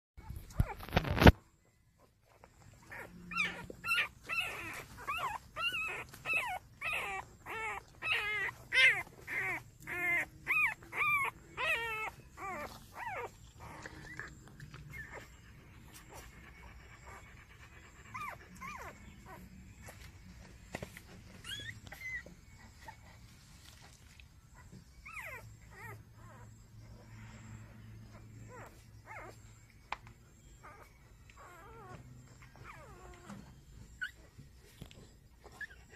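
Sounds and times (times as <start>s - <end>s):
puppies whimpering and squeaking: 0.2s - 35.9s.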